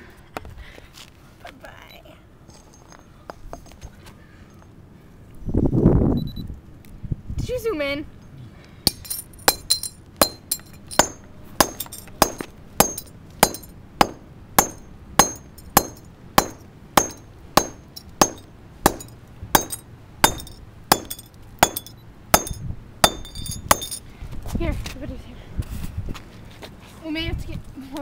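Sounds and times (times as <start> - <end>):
sharp metallic clinking knocks: 8.9 - 24.1.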